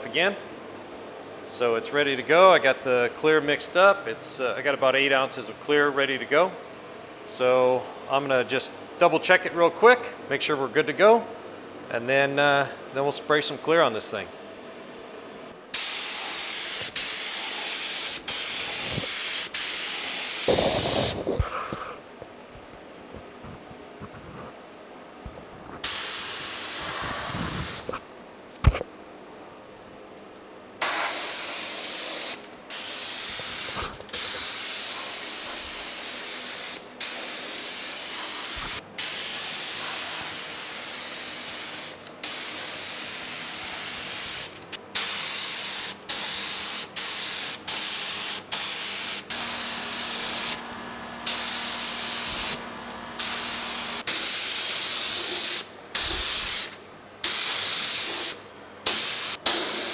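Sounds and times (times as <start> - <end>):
spray gun hissing: 15.7 - 21.3, 25.8 - 27.9, 30.8 - 50.6, 51.2 - 52.6, 53.2 - 59.9.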